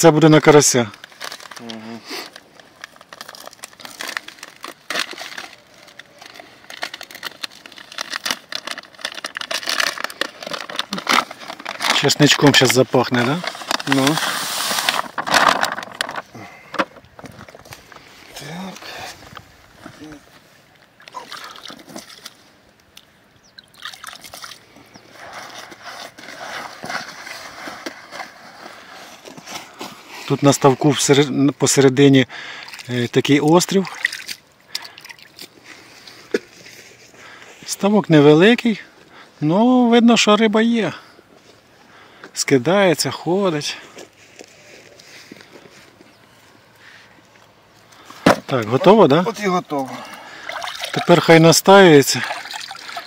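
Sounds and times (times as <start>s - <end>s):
foil bag crinkling: 0.5s - 20.2s, 24.3s - 30.8s, 47.8s - 53.0s
crumbly mix rustling: 2.2s - 20.6s
water dripping into a bucket: 21.0s - 24.7s, 33.8s - 35.5s, 50.3s - 51.3s, 52.0s - 53.0s
hands kneading wet bait: 32.5s - 36.2s, 49.4s - 53.0s.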